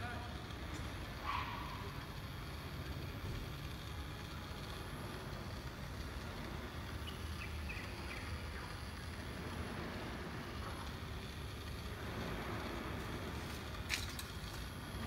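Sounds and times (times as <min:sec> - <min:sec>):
low outdoor rumble: 0:00.0 - 0:15.0
thin steady high tone: 0:00.0 - 0:15.0.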